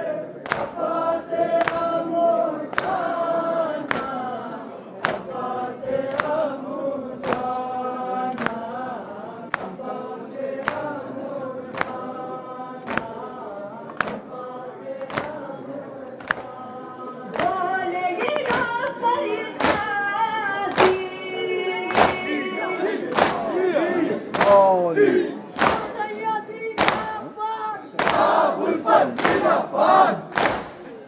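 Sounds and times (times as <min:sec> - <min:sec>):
crowd of men chanting: 0:00.0 - 0:17.4, 0:21.8 - 0:30.7.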